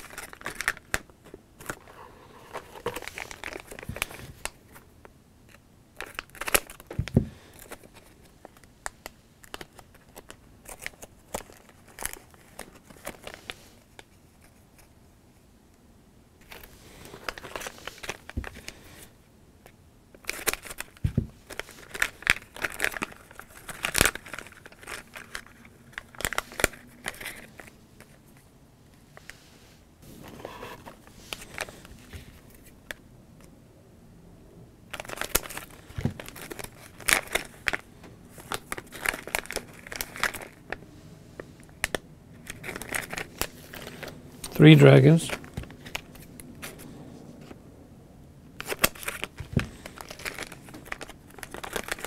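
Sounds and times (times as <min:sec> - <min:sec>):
scissors cutting plastic packet: 0:00.0 - 0:01.8, 0:20.2 - 0:27.5, 0:38.4 - 0:40.6, 0:41.8 - 0:46.1, 0:48.6 - 0:52.0
plastic foil crinkling: 0:00.0 - 0:04.8, 0:06.0 - 0:14.7, 0:16.4 - 0:19.1, 0:20.2 - 0:28.3, 0:30.5 - 0:32.8, 0:34.9 - 0:40.8, 0:41.6 - 0:46.9, 0:48.6 - 0:52.0.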